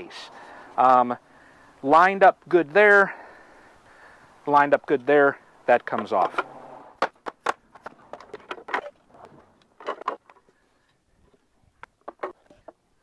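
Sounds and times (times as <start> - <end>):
wooden parts knocking and clacking: 5.8 - 10.5, 11.8 - 12.8.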